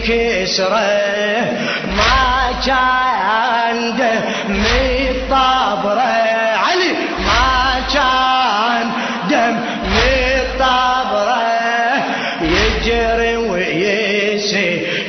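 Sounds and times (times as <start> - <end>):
lamentation chant singing: 0.0 - 15.0
deep bass note: 7.2 - 8.2, 9.8 - 11.1, 12.5 - 13.5.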